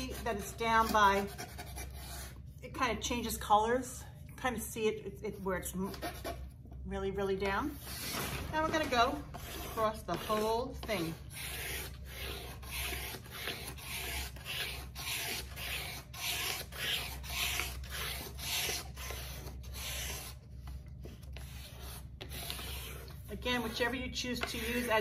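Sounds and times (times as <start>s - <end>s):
wooden stick scraping paper: 7.8s - 25.0s.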